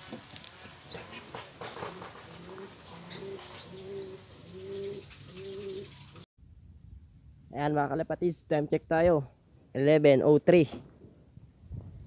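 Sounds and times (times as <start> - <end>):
pigeons cooing: 0.9 - 6.2
high falling bird chirps: 2.3 - 6.3.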